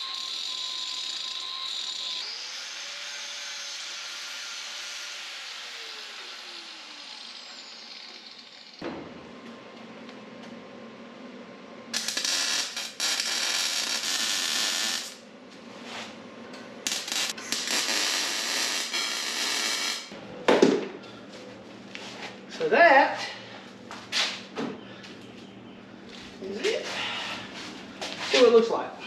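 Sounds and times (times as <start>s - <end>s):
mig welding crackling buzz: 11.9s - 15.2s, 16.8s - 20.2s
welding tacks: 12.0s - 15.2s, 16.8s - 20.1s.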